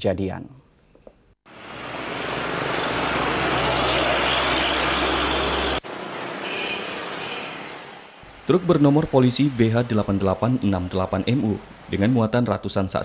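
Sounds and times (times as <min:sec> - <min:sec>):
quiet traffic noise: 0:01.2 - 0:13.0
vehicle passing with engine hum: 0:01.5 - 0:08.2.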